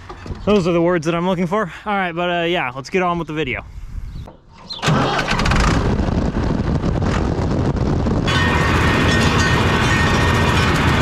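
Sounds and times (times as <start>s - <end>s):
tractor diesel engine running: 4.8s - 11.0s
steady whine: 6.2s - 11.0s.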